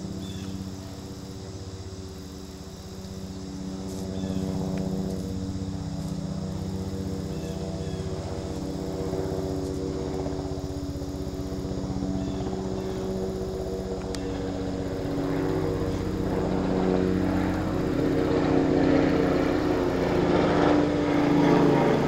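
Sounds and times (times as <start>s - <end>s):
distant engine drone: 0.0s - 22.0s.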